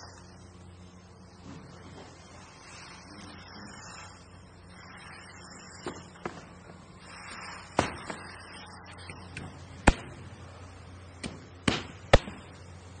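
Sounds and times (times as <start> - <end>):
low steady hum: 0.0 - 13.0
sharp knocks and bangs: 11.2 - 12.5.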